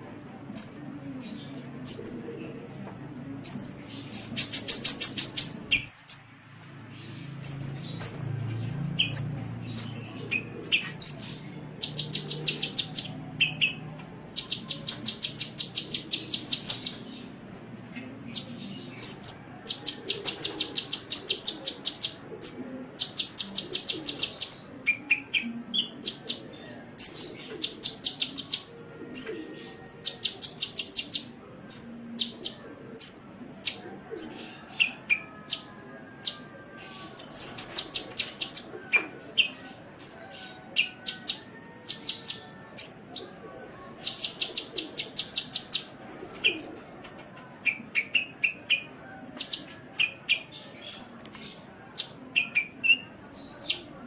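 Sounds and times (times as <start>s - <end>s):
bird chirps: 0.6s - 0.8s
bird trilling: 0.6s - 0.9s, 3.4s - 6.3s, 7.2s - 8.4s, 9.0s - 13.8s.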